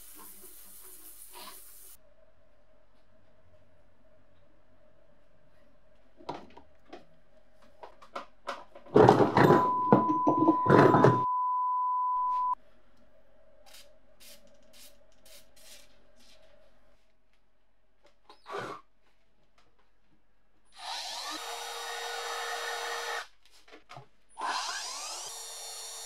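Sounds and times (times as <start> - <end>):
spray can hissing: 0.0 - 2.0, 13.7 - 15.9
steady beep tone: 9.5 - 12.6.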